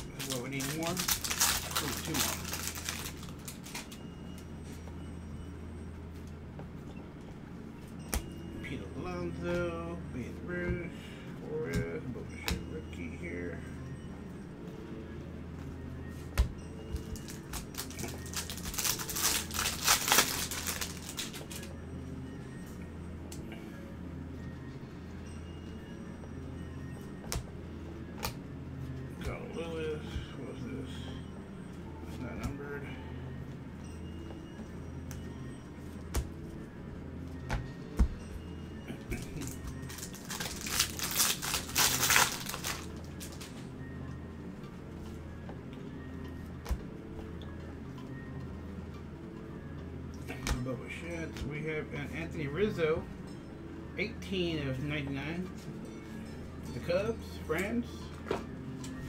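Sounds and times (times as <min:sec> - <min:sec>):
card pack wrapper crinkling: 0:00.0 - 0:03.9, 0:17.2 - 0:21.7, 0:39.4 - 0:43.5.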